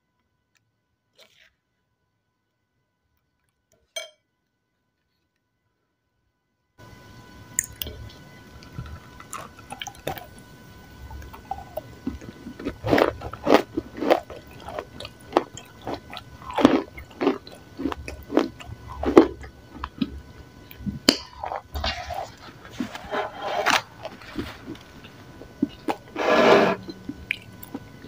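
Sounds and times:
crunchy biting and chewing: 0:11.0 - 0:28.0.

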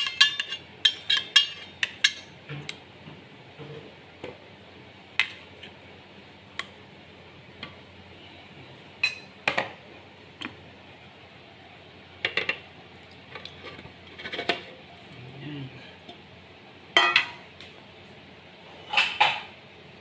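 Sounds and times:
kitchenware clinking: 0:00.0 - 0:02.3, 0:09.0 - 0:09.7, 0:17.0 - 0:17.5, 0:18.8 - 0:19.5.

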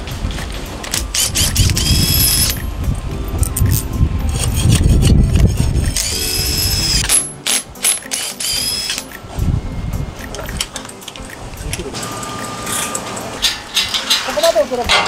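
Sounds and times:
high motor whine: 0:00.9 - 0:10.1.

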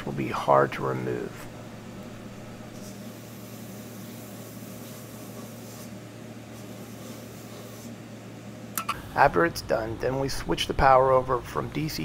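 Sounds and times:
etching unit humming: 0:00.0 - 0:12.0
sharp click: 0:08.7 - 0:09.0.

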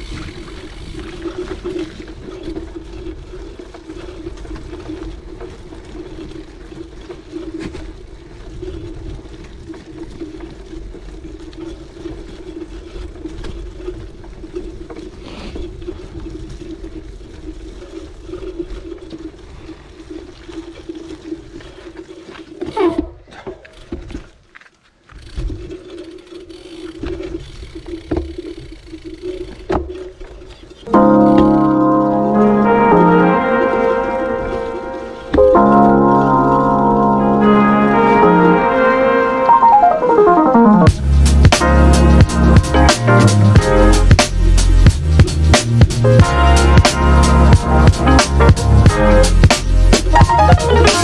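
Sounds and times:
bike tyres rumbling on dirt: 0:00.0 - 0:39.9, 0:40.7 - 0:51.0.

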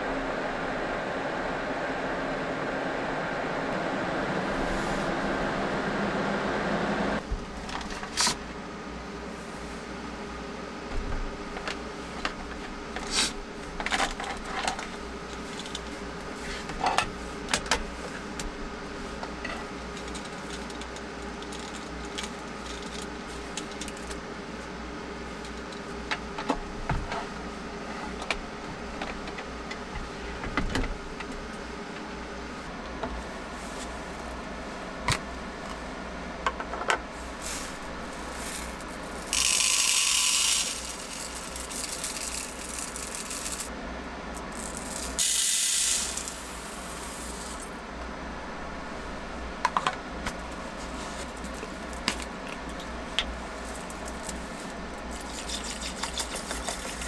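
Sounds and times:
steady hum: 0:00.0 - 0:57.0
loud hiss: 0:44.6 - 0:47.7.

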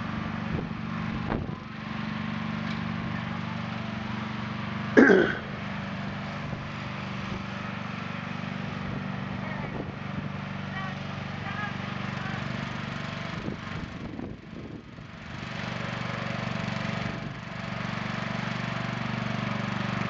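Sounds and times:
riding lawn mower engine running: 0:00.0 - 0:20.0
person's short loud vocal burst: 0:05.0 - 0:05.5.

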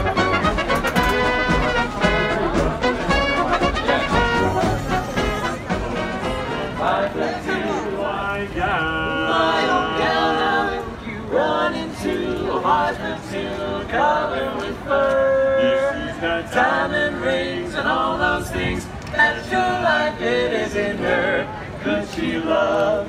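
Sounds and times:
male quartet singing a cappella: 0:01.0 - 0:23.0.

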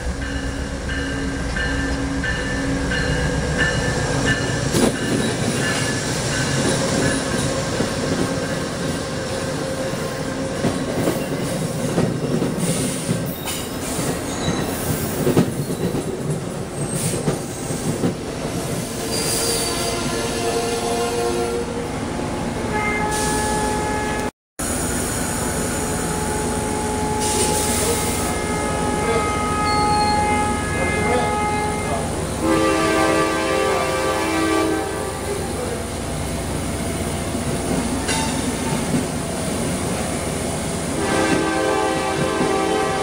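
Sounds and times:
train rumbling past: 0:00.0 - 0:43.0
shrill metallic squealing: 0:26.7 - 0:31.6.

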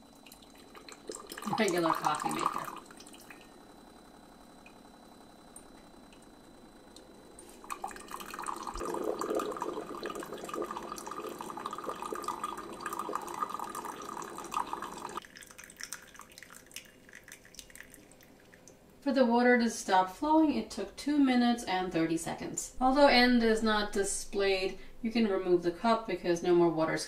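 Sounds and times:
coffee maker brewing: 0:00.0 - 0:18.8
coffee streaming into a mug: 0:00.2 - 0:03.4, 0:07.6 - 0:18.7
light dripping: 0:04.6 - 0:04.8, 0:05.5 - 0:18.8.

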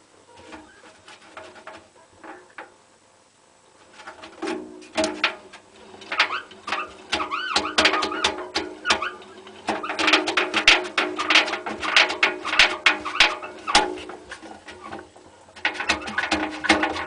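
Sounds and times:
washing machine drum squeaking: 0:04.0 - 0:17.0.

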